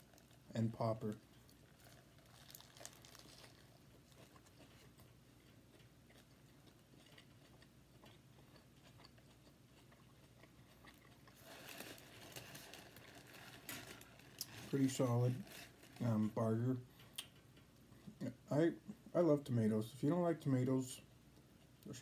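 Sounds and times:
paper wrapper rustling: 1.7s - 3.8s, 11.4s - 16.2s
chewing and wet mouth clicks: 2.8s - 11.4s.

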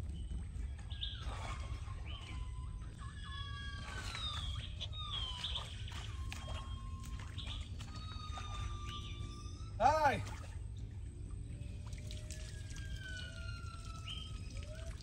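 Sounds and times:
monkeys calling: 1.9s - 10.2s.

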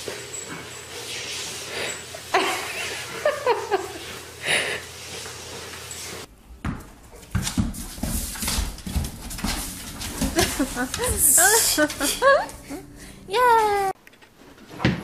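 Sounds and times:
paws sliding on hardwood floor: 0.0s - 6.3s, 7.2s - 12.3s.

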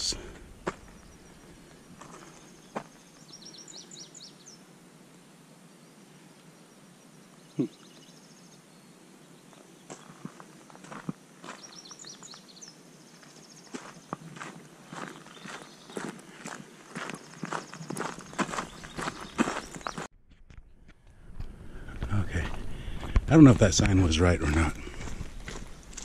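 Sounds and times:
footsteps on a trail: 0.2s - 3.8s, 9.5s - 26.0s.

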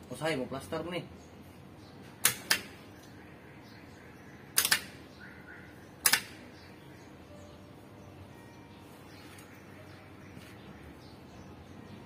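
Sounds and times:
sharp clicks of meter probe: 2.2s - 3.2s, 4.5s - 5.0s, 6.0s - 6.4s.

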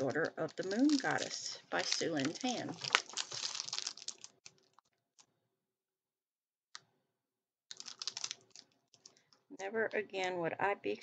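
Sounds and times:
packaging rustling: 0.0s - 5.3s, 7.7s - 9.3s.

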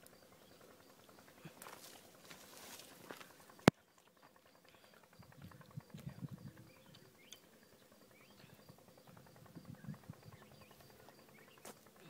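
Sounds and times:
fast insect-like ticking: 0.0s - 12.0s.

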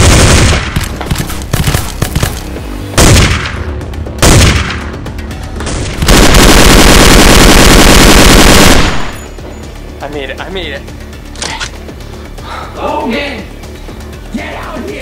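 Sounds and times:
rapid machine-gun fire: 0.0s - 0.8s, 6.0s - 9.2s.

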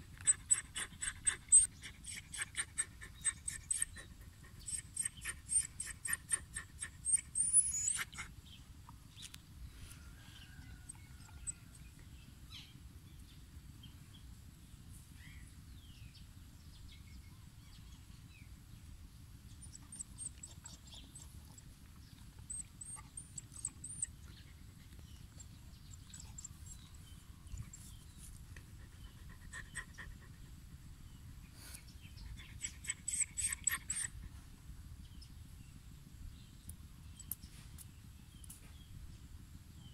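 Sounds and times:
dog panting: 0.0s - 8.4s, 19.6s - 30.8s, 32.1s - 34.5s
low steady rumble: 0.0s - 39.9s.

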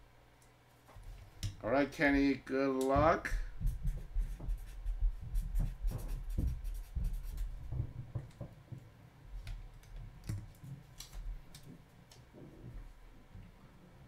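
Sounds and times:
scratchy writing on paper: 3.6s - 7.8s.

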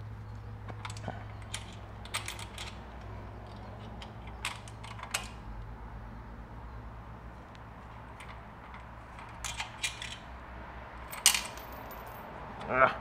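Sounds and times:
metal hardware clicking and clinking: 0.7s - 5.4s, 8.1s - 10.3s, 11.1s - 12.7s.

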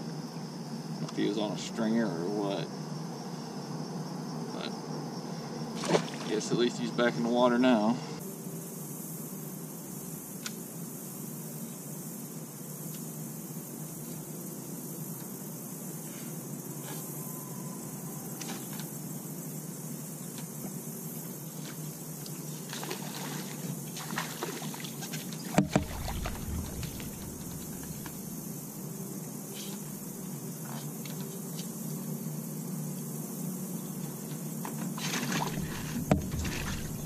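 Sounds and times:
water splashing: 5.8s - 6.4s, 22.7s - 28.3s, 35.0s - 37.0s
sharp thumps: 25.5s - 28.4s, 35.4s - 37.0s
boat motor humming: 25.6s - 28.3s, 35.4s - 37.0s.

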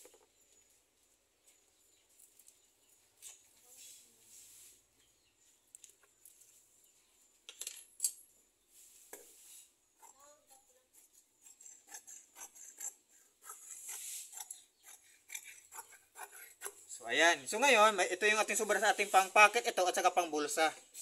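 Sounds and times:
shears snipping fabric: 10.0s - 16.8s.

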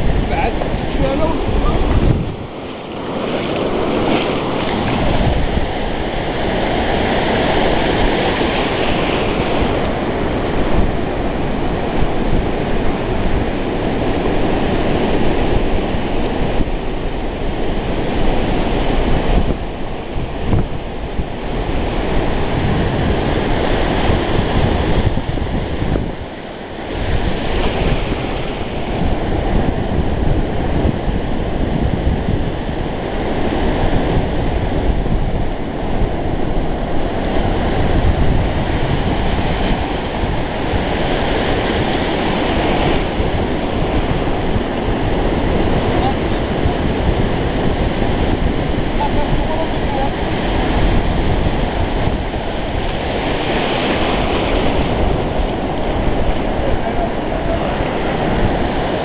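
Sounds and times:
sea waves breaking on shore: 0.0s - 59.0s
wind buffeting microphone: 0.0s - 59.0s.

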